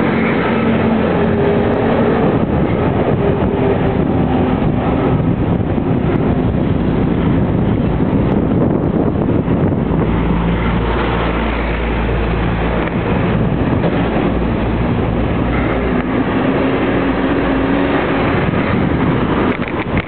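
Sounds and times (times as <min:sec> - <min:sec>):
vehicle engine running: 0:00.0 - 0:20.0
wind buffeting microphone: 0:00.0 - 0:20.0.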